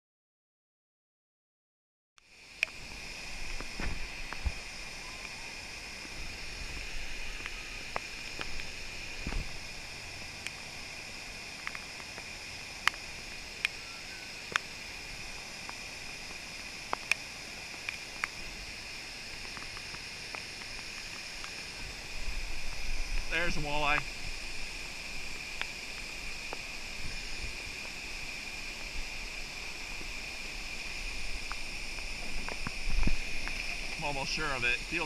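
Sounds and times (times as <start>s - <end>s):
river water pouring over dam: 2.4s - 35.0s.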